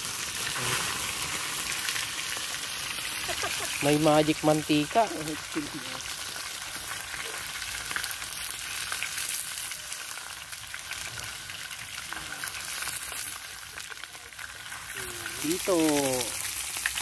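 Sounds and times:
fish frying in oil: 0.0s - 17.0s.

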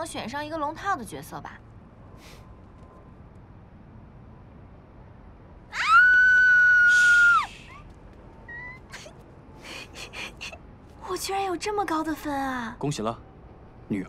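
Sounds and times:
woman squealing with delight: 5.7s - 7.8s.

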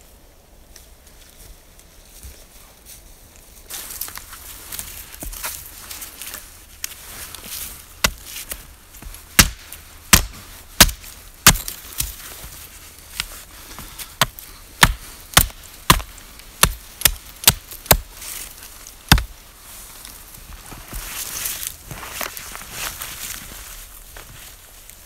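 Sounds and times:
axe chopping wood: 8.0s - 12.3s, 14.1s - 18.2s, 19.0s - 19.4s.

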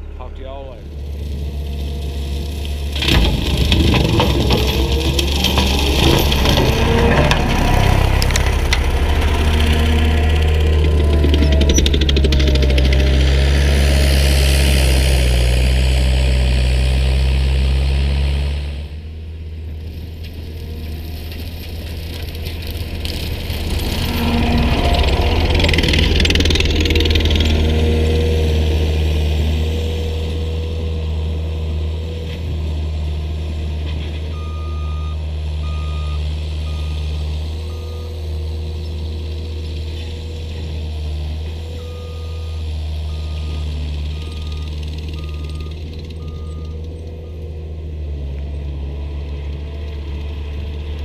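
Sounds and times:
mower rushing cut: 0.0s - 18.9s, 19.9s - 47.2s
diesel engine under load: 0.0s - 51.0s
backup alarm beeps: 34.4s - 37.1s.

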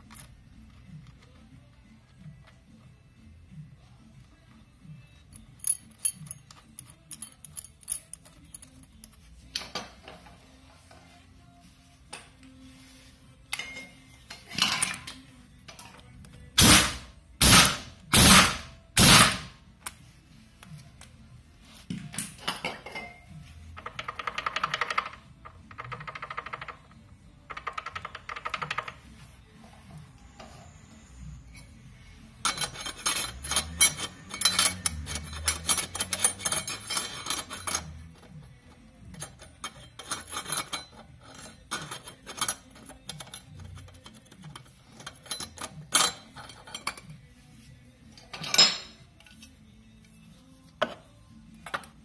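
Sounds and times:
metal parts clinking: 5.3s - 9.1s, 32.4s - 47.3s.

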